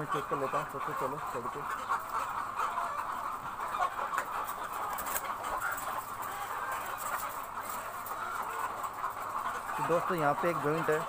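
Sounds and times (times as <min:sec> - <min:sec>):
chickens clucking: 0:00.0 - 0:11.0.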